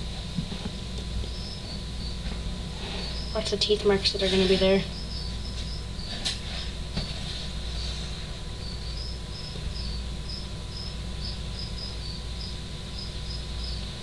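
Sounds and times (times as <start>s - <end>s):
steady low hum: 0.0s - 14.0s
cricket chirping: 1.3s - 2.2s, 3.0s - 3.4s, 4.8s - 6.2s, 8.5s - 14.0s.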